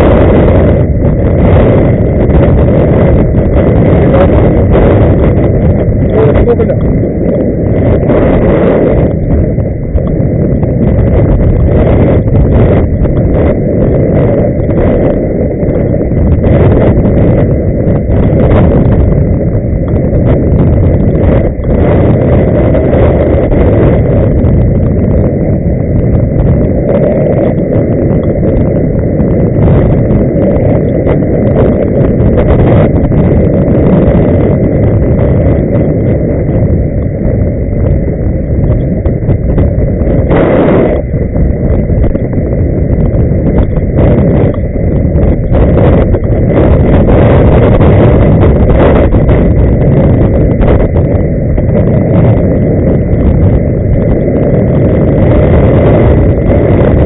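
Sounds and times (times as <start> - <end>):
faint high whine: 0.0 - 57.0
wind on microphone: 0.0 - 57.0.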